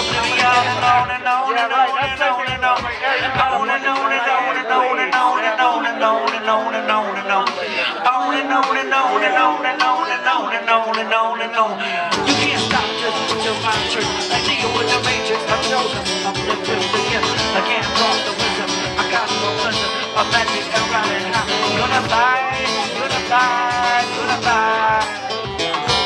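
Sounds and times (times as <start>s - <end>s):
drum kit: 0.0s - 4.1s, 12.1s - 26.0s
acoustic guitar: 0.0s - 26.0s
man singing: 0.0s - 26.0s.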